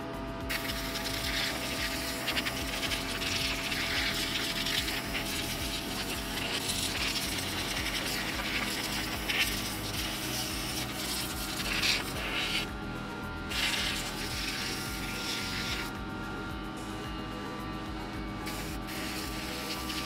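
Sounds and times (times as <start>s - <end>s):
compressed air hissing: 0.0s - 12.8s, 13.4s - 20.0s
steady tone: 0.0s - 20.0s.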